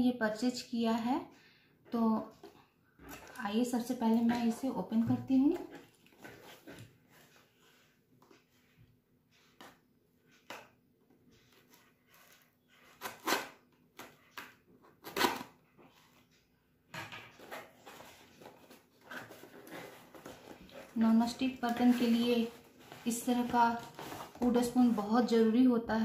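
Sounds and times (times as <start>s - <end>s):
cardboard tearing: 12.1s - 13.6s, 15.0s - 15.6s
packing tape ripping: 13.0s - 14.1s, 15.0s - 15.6s.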